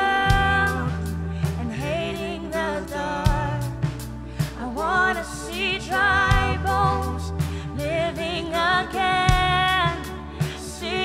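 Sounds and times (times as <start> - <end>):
drum and cymbal hits: 0.0 - 2.6, 5.5 - 11.0
man singing into a microphone: 0.0 - 3.8
low bass: 0.0 - 11.0.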